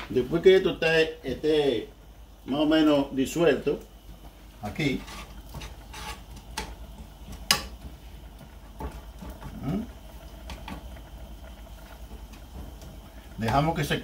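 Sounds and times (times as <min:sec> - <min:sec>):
metal spoon scraping steel pot: 0:04.8 - 0:06.4.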